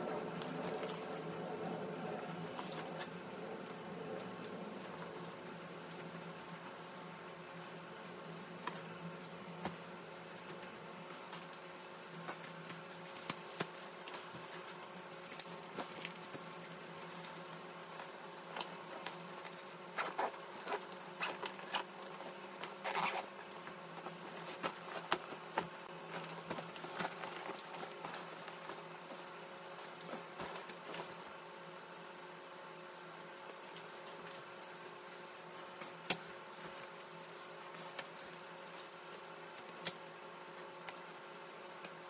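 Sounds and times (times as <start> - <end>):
bag fabric and straps rustling: 18.8 - 31.2
zipper scratching: 19.9 - 21.9, 22.8 - 23.4.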